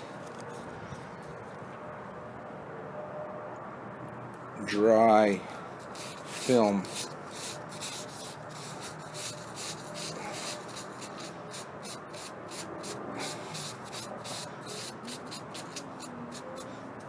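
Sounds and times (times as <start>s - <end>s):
paper wipe scrubbing on steel: 5.8s - 16.8s.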